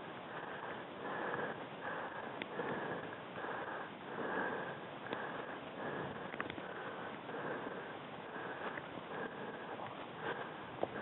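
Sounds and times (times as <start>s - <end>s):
heavy fast breathing: 0.0s - 11.0s
faint clicks: 2.3s - 3.2s, 5.0s - 7.2s, 8.6s - 8.9s.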